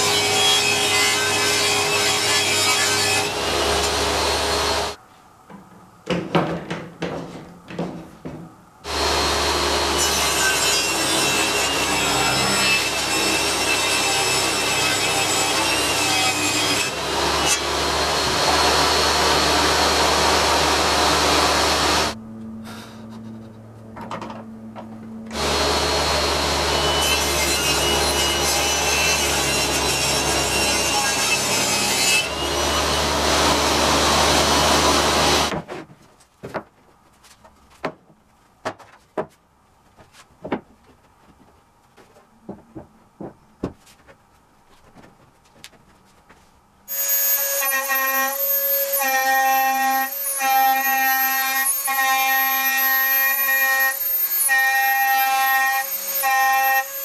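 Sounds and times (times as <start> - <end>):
table saw cutting board: 0.0 - 5.0, 8.9 - 22.2, 25.3 - 35.6, 46.9 - 57.0
board knocking: 5.6 - 8.5.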